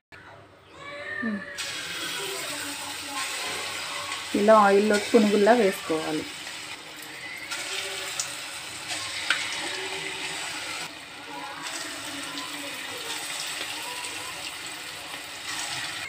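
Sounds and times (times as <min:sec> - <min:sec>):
batter sizzling in hot oil: 0:01.6 - 0:16.0.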